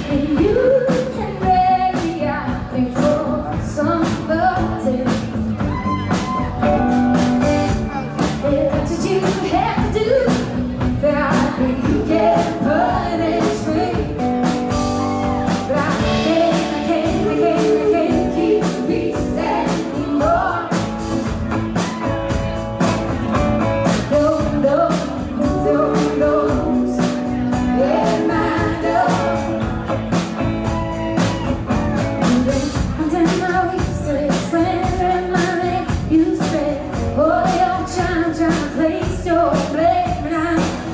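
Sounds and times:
woman singing backing harmony: 0.0s - 6.1s, 8.4s - 14.4s, 15.3s - 21.0s, 24.1s - 29.7s, 32.2s - 40.9s
woman singing lead: 0.0s - 7.2s, 8.2s - 22.9s, 23.8s - 40.9s
electric bass: 0.0s - 40.9s.

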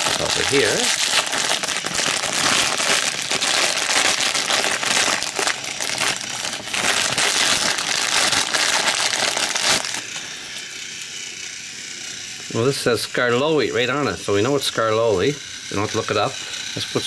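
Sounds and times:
plastic wrapper crinkling: 0.0s - 10.2s.

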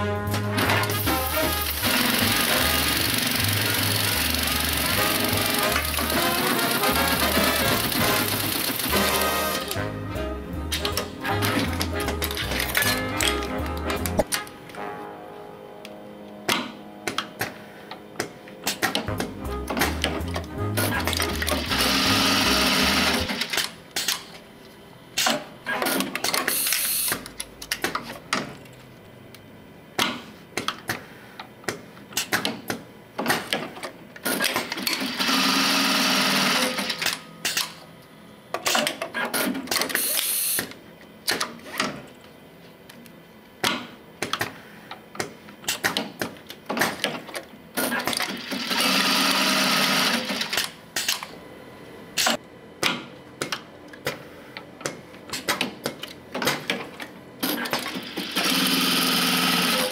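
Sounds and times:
industrial sewing machine stitching: 0.3s - 9.8s, 10.7s - 14.3s, 20.8s - 23.7s, 34.2s - 37.2s, 47.8s - 50.7s, 57.4s - 59.9s.

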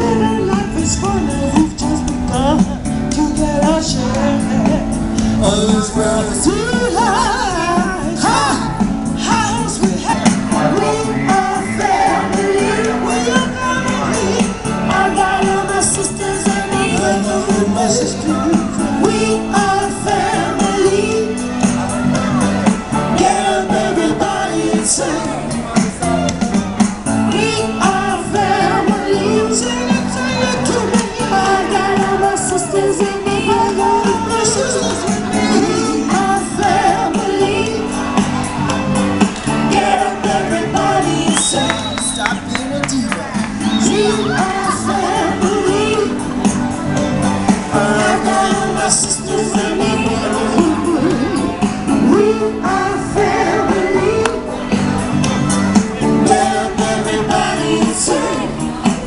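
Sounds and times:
person singing with vibrato: 0.0s - 21.6s, 27.2s - 38.2s, 43.2s - 46.4s, 47.6s - 54.7s, 56.0s - 59.0s
amplified band music: 0.0s - 59.0s
bass line: 0.0s - 59.0s.

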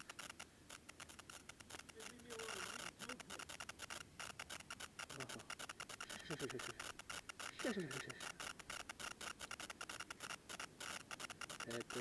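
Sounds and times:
faint crackling and rustling: 0.0s - 12.0s.

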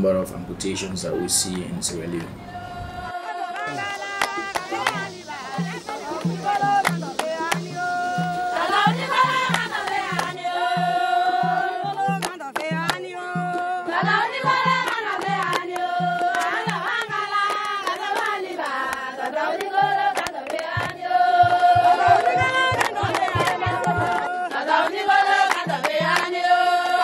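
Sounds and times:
music melody: 1.0s - 11.8s.

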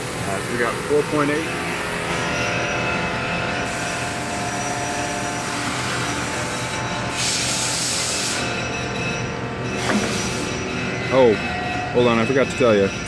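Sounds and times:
machinery hum: 0.0s - 13.0s
loud hiss: 7.1s - 8.4s.

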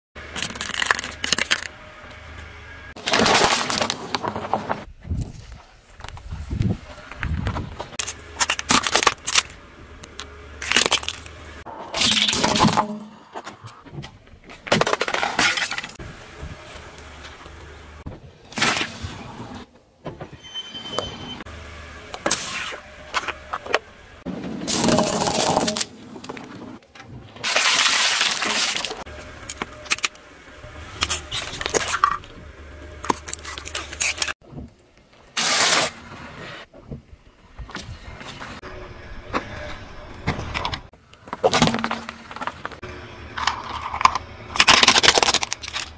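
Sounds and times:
low engine hum: 0.2s - 3.0s, 6.8s - 11.7s, 16.0s - 18.4s, 21.3s - 24.3s, 28.8s - 34.4s, 42.3s - 45.9s
tyre crushing plastic objects: 0.3s - 1.7s, 3.0s - 4.9s, 7.8s - 11.3s, 13.9s - 16.0s, 24.4s - 26.8s, 27.4s - 30.2s, 41.2s - 42.8s, 43.4s - 45.9s.

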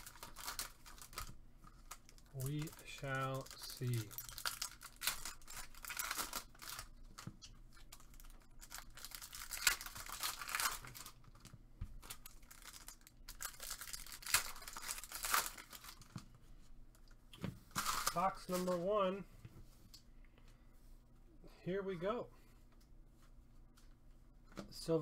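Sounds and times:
wrappers tearing and crinkling: 0.0s - 16.1s, 17.7s - 18.8s.

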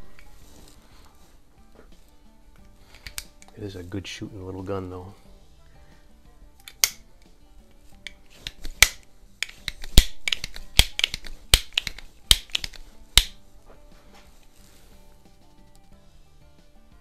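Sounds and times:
air pistol mechanism clicks: 2.6s - 3.6s, 6.6s - 7.3s, 8.0s - 13.4s.

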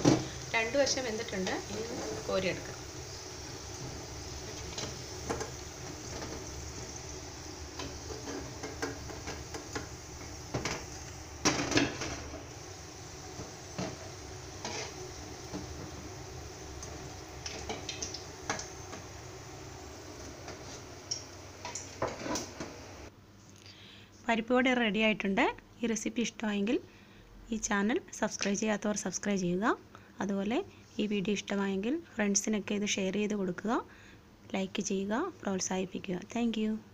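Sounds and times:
fritters sizzling in oil: 0.0s - 23.1s
steel spoon scraping a pan: 13.8s - 15.2s.

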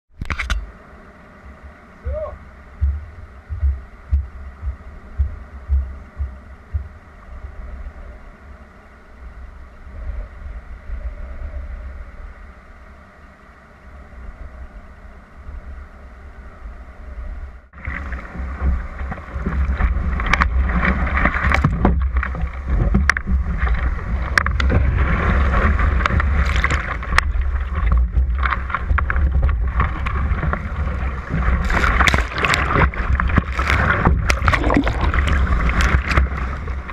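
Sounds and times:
wind gusting on microphone: 13.9s - 36.9s
breaking surf rushing: 17.8s - 36.9s
water splashes: 17.8s - 36.9s.

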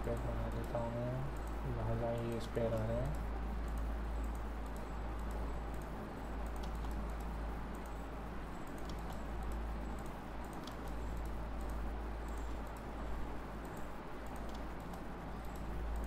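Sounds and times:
steady low hum: 0.0s - 16.0s
mouse and keyboard clicks: 2.7s - 8.0s, 8.7s - 12.5s.

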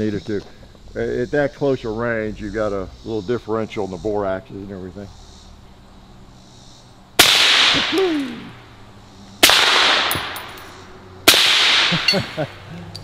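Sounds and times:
suppressed rifle shots: 7.2s - 8.1s, 9.4s - 12.2s.

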